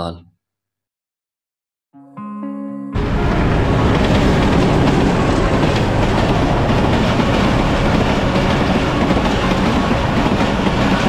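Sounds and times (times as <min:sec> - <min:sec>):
train coaches rolling on rails: 0:03.0 - 0:11.0.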